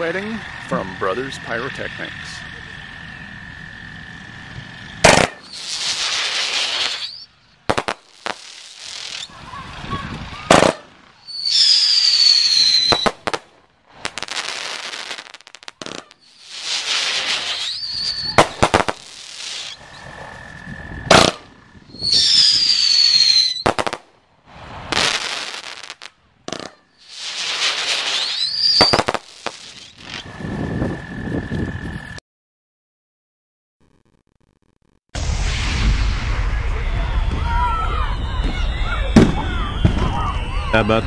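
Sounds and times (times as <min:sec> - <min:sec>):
firework cracking reports: 0:00.0 - 0:31.2, 0:35.2 - 0:41.0
falling firework whistles: 0:02.3 - 0:32.2, 0:35.2 - 0:41.0
firework hissing launches: 0:05.0 - 0:20.2, 0:22.0 - 0:30.8, 0:35.2 - 0:38.2.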